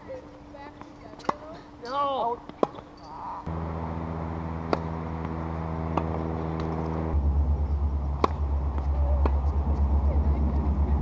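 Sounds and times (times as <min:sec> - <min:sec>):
engine hum: 0:03.4 - 0:11.0.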